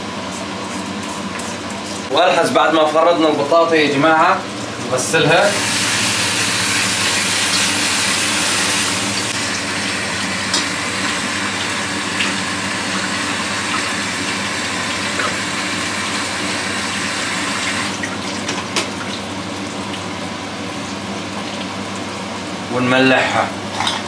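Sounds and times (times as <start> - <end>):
water running from tap: 5.3 - 22.1.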